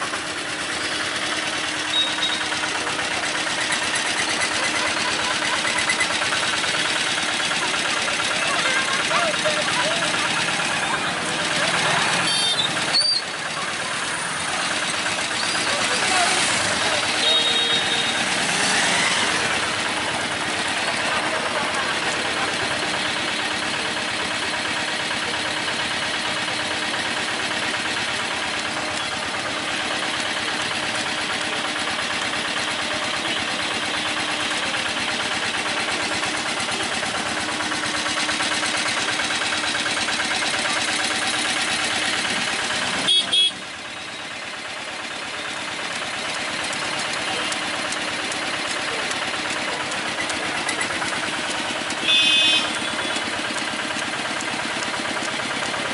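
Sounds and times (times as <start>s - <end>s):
crowd voices: 0.0s - 43.1s, 43.8s - 52.1s
engines idling: 0.0s - 55.9s
vehicle horns honking: 1.9s - 2.4s, 12.2s - 12.8s, 17.1s - 18.5s, 43.0s - 43.7s, 51.9s - 53.3s.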